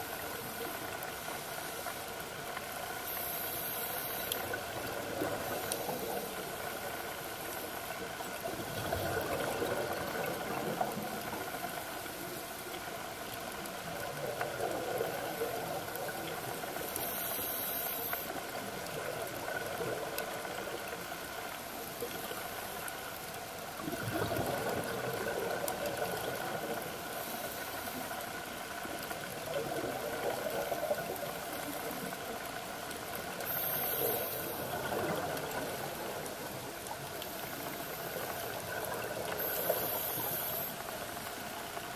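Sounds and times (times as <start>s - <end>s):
underwater hiss: 0.0s - 13.3s, 13.9s - 20.9s, 23.9s - 32.5s, 33.1s - 41.4s.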